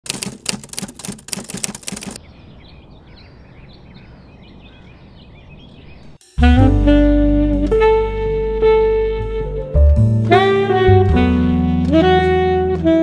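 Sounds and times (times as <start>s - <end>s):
rapid sharp clicks: 0.0s - 2.2s
small bird chirps: 2.2s - 6.2s
saxophone music: 6.2s - 13.0s.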